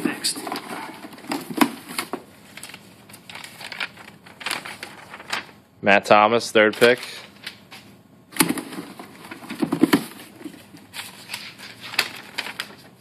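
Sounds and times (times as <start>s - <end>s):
paper rustling and crinkling: 0.0s - 5.6s, 8.4s - 13.0s
sharp paper crackles: 2.5s - 5.6s, 10.7s - 13.0s.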